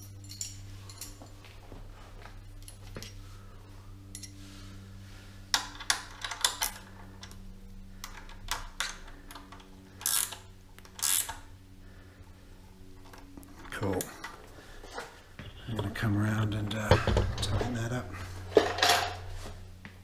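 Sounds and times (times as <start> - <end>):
hand ratchet clicking: 8.0 - 11.4.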